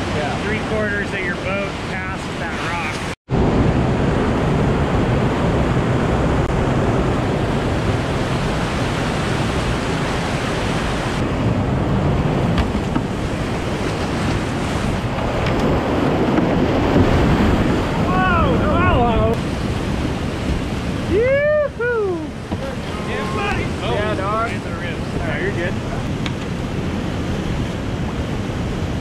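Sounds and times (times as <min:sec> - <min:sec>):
whitewater rapids rushing: 0:12.8 - 0:26.9.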